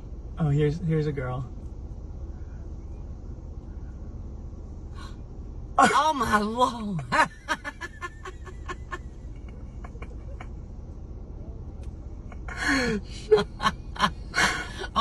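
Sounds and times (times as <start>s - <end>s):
low rumble inside car: 0.0s - 15.0s
person gasping and laughing: 12.5s - 13.3s.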